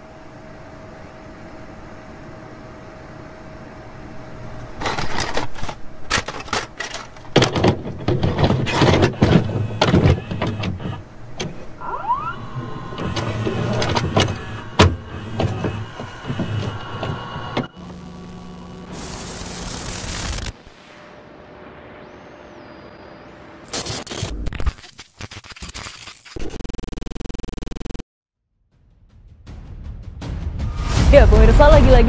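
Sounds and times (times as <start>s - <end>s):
short motor whines: 8.6s - 21.1s.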